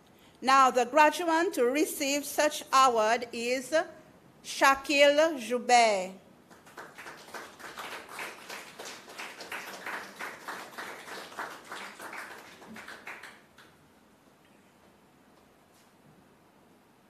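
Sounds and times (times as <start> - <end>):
audience applauding: 6.5 - 13.7.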